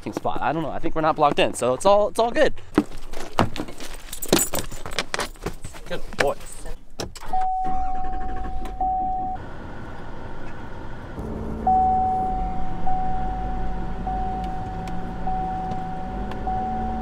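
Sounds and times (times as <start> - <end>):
electronic warning chime: 7.3 - 9.4, 11.5 - 17.0
diesel engine running: 7.6 - 17.0.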